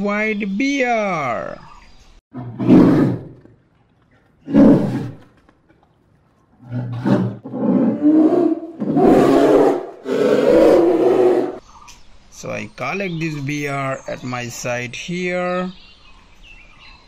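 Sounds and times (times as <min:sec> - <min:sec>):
bear roaring: 0:02.4 - 0:05.4, 0:06.6 - 0:11.6.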